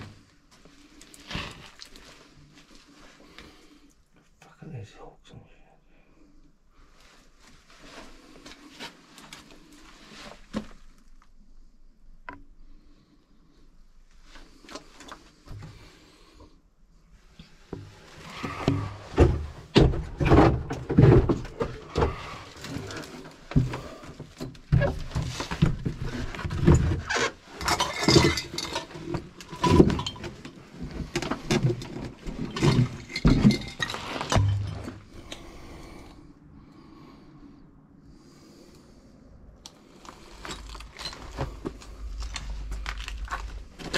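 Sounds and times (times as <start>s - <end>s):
knocks and bumps: 17.8s - 35.2s
footsteps crunching over rubble: 39.9s - 43.9s.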